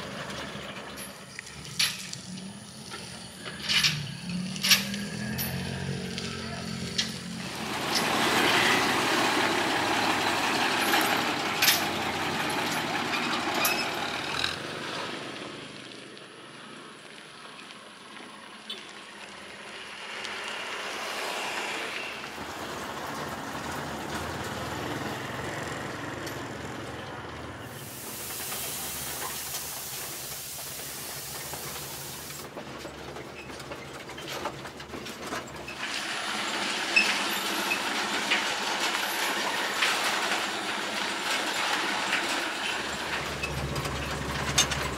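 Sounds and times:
truck engine driving: 0.0s - 16.4s, 20.0s - 44.9s
road and rattle noise: 0.0s - 44.9s
steady high hiss: 27.7s - 32.4s.

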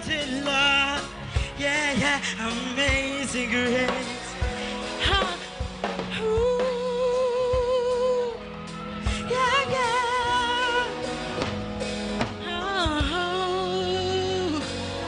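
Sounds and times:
instrumental accompaniment with drums: 0.0s - 13.8s.

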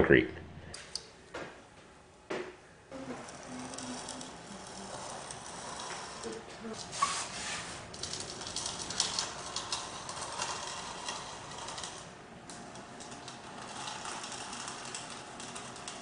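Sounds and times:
marker scratching on flooring: 2.9s - 7.9s
tape measure rustling: 3.0s - 16.0s.

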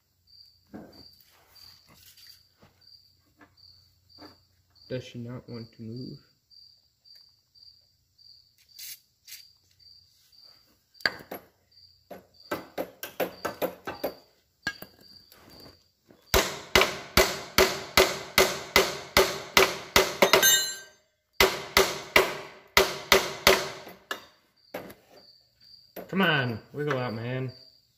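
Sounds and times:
hammer striking metal: 16.4s - 24.3s.

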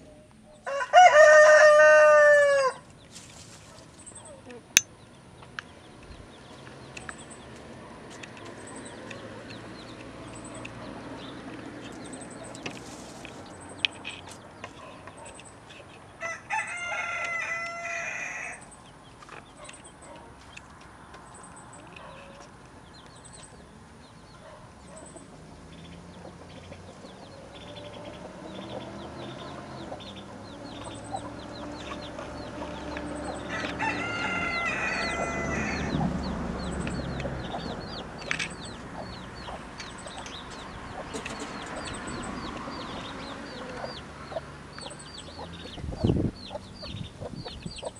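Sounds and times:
baby chicks peeping: 0.0s - 47.9s
rooster crowing: 0.6s - 2.8s, 16.2s - 18.7s, 33.2s - 36.2s.

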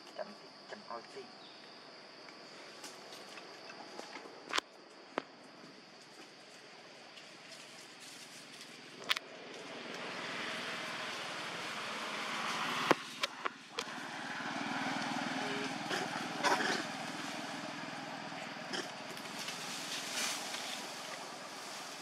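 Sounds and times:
motor engine running: 13.8s - 22.0s.

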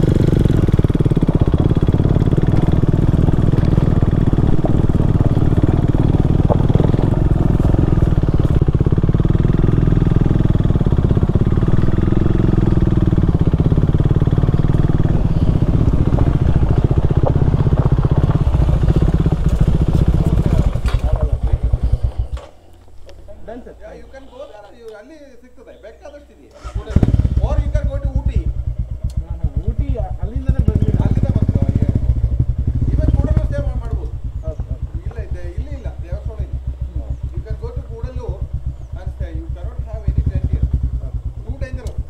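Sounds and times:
motorcycle engine running: 0.0s - 24.0s, 26.6s - 42.0s.

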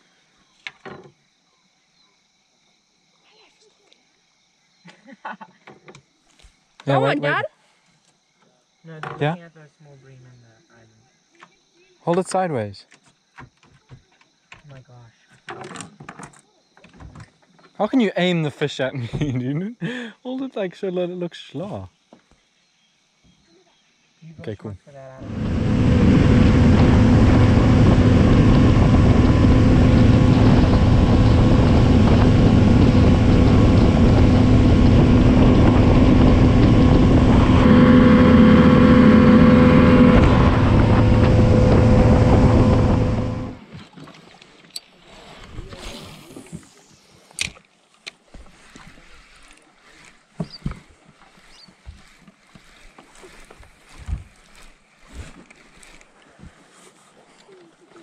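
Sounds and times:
boat motor droning: 25.2s - 44.7s, 48.3s - 56.6s.

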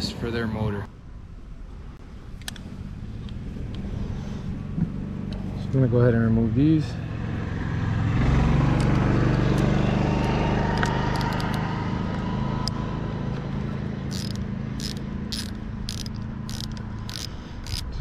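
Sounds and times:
vehicle engine drone: 0.0s - 18.0s
hand ratchet clicking: 10.2s - 11.6s, 14.1s - 18.0s.

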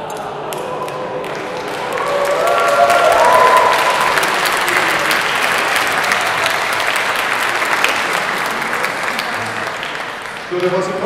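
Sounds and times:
audience applauding: 0.1s - 11.0s.

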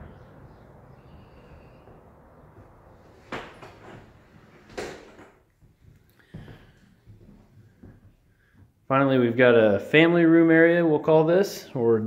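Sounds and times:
faint room noise: 0.0s - 12.0s
sharp knocks: 2.6s - 5.4s.

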